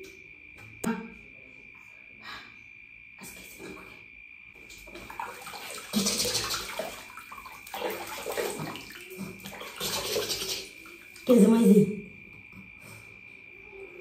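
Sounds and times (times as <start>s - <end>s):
water splashing in bathtub: 3.2s - 12.1s.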